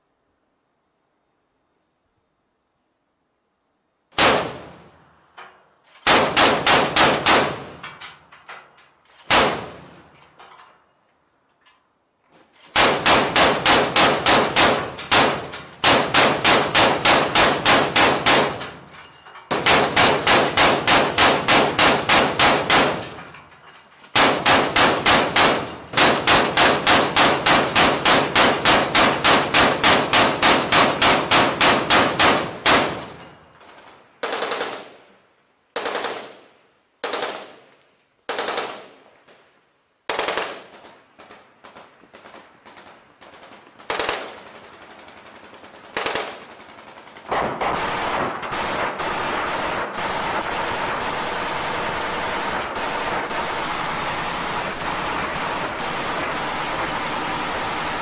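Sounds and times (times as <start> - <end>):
autocannon firing: 4.2 - 4.9, 6.0 - 8.0, 9.3 - 10.1, 12.7 - 18.9, 19.5 - 23.2, 24.1 - 34.9, 43.8 - 58.0.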